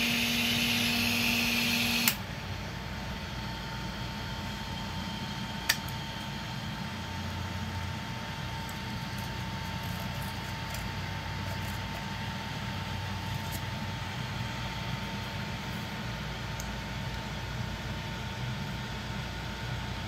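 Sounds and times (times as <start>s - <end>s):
electric motors humming and whining: 0.0s - 2.3s.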